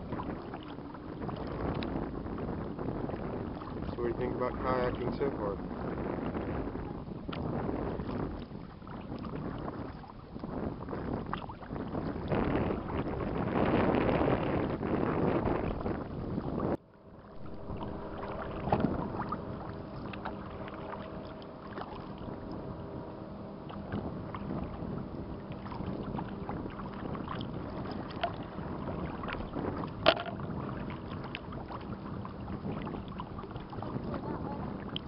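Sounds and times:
paddle strokes splashing: 0.0s - 2.5s, 6.8s - 14.4s, 15.4s - 35.0s
faint steady hum: 0.0s - 35.0s
water lapping against hull: 0.0s - 35.0s
sharp knocks: 30.0s - 30.4s.

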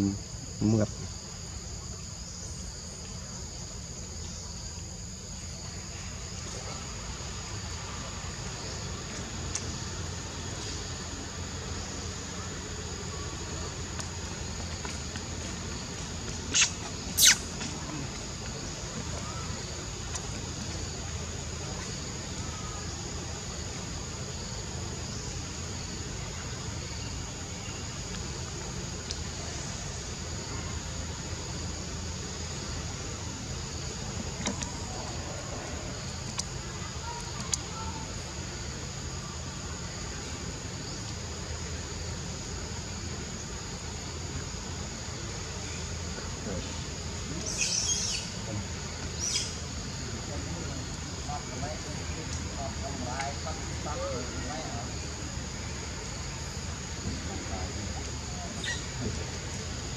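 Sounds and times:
insect chorus buzzing: 0.0s - 59.9s
high-pitched insect drone: 15.8s - 19.9s
faint click: 34.4s - 34.8s, 36.3s - 36.5s, 37.2s - 37.6s.

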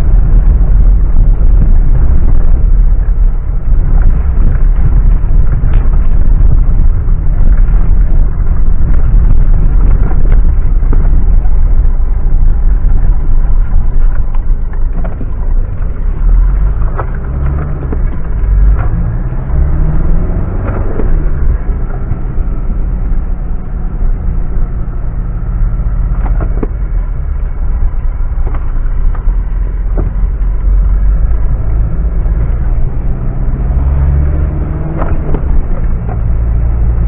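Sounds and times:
engine rumbling and revving: 0.0s - 37.0s
sharp knocks and cracks: 26.1s - 26.8s, 34.7s - 36.6s.

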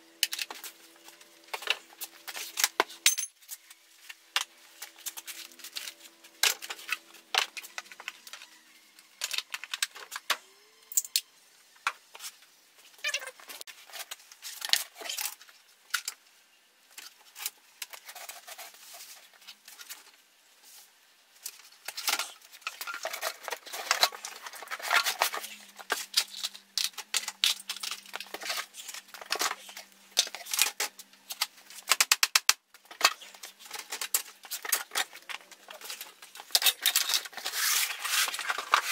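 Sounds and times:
tools clinking on metal workbench: 3.0s - 3.3s.

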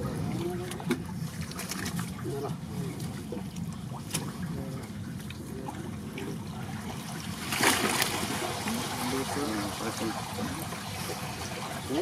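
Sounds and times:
water splash: 6.9s - 12.0s.

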